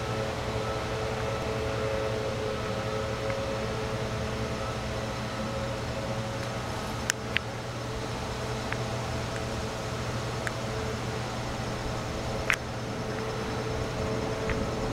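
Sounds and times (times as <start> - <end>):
steady mechanical hum: 0.0 - 14.9.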